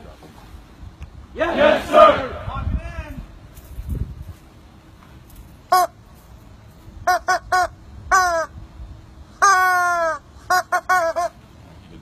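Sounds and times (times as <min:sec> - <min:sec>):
rubber chicken squawking: 0:09.4 - 0:11.4.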